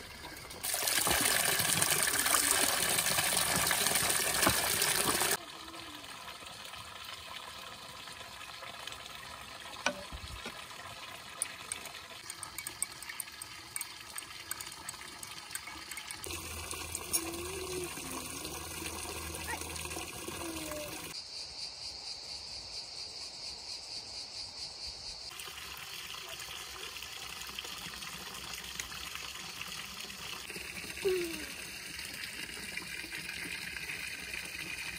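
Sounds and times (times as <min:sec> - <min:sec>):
water running: 0:00.0 - 0:21.2, 0:25.3 - 0:34.9
spoon clinking against glass: 0:11.4 - 0:16.3.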